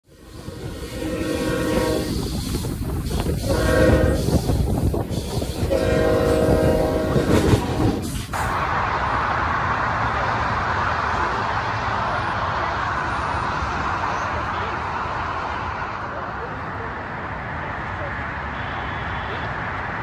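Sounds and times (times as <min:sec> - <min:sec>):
steady rushing noise: 0:00.0 - 0:20.0
train air horn blasts: 0:00.1 - 0:08.4
train wheels clattering on rails: 0:00.4 - 0:08.6.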